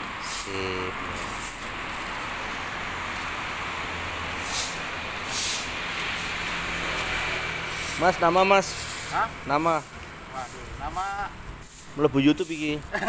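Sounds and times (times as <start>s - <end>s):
city street traffic hum: 0.0s - 13.0s
short hisses: 4.4s - 6.4s.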